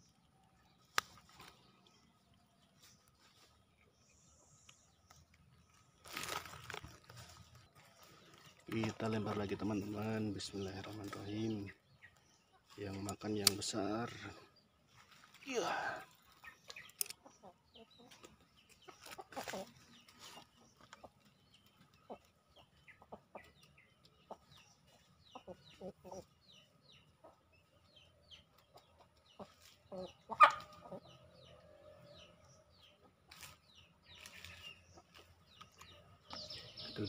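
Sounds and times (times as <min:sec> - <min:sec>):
small birds chirping: 0:00.0 - 0:37.0
chickens clucking: 0:16.1 - 0:37.0.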